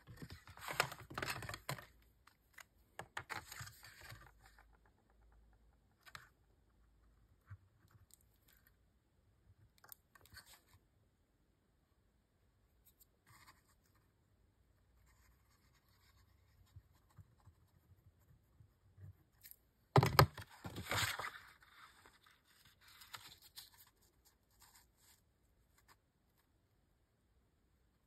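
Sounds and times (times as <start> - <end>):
card rustling: 0.1 - 1.9.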